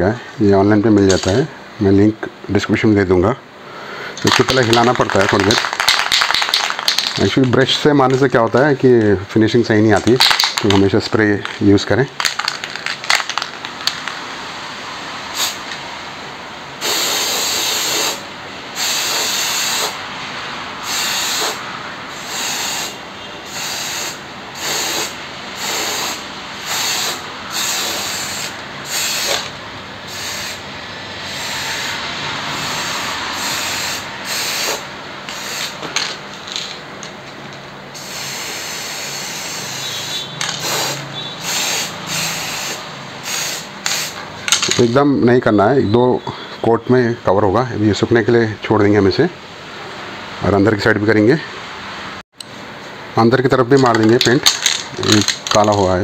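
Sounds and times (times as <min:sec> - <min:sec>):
spray can clicks and rattles: 0:04.2 - 0:08.3, 0:10.1 - 0:11.6, 0:12.2 - 0:14.2, 0:24.7 - 0:29.6, 0:34.3 - 0:37.2, 0:40.4 - 0:42.7, 0:43.3 - 0:44.8, 0:53.8 - 0:56.0
spray paint can hissing: 0:04.3 - 0:07.3, 0:15.4 - 0:15.7, 0:16.8 - 0:18.2, 0:18.8 - 0:20.0, 0:20.8 - 0:29.5, 0:30.1 - 0:30.6, 0:32.6 - 0:36.6, 0:38.0 - 0:44.2.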